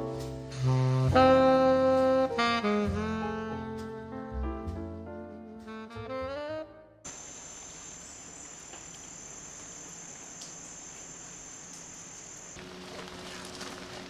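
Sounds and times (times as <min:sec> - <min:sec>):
insects buzzing: 0:07.1 - 0:14.0.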